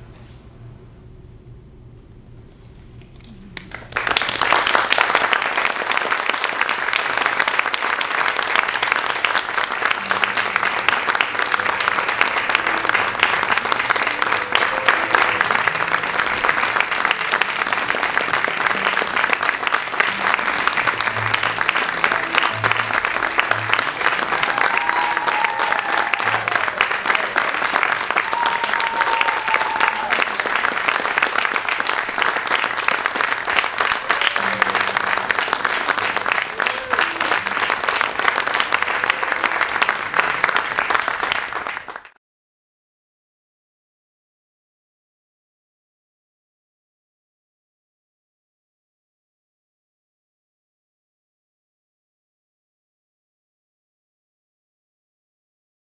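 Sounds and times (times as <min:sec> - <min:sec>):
audience applauding: 0:03.4 - 0:42.2.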